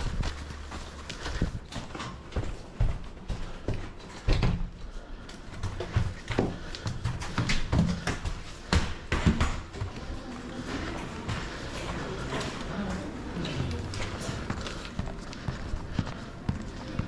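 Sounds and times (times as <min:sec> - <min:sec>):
heavy boots clomping on floor: 0:00.0 - 0:13.1.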